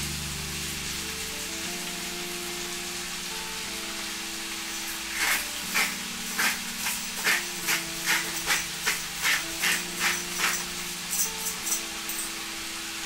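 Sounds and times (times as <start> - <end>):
background music: 0.0 - 13.0
utensil scraping: 5.0 - 10.7.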